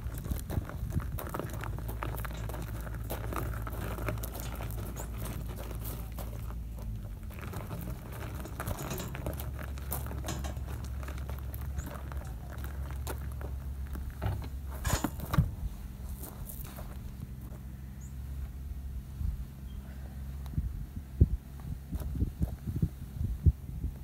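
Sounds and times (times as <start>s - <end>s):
boots crunching on gravel: 0.0s - 18.6s
hand truck wheels rolling over gravel: 0.0s - 18.6s
steady low rumble: 0.0s - 24.0s.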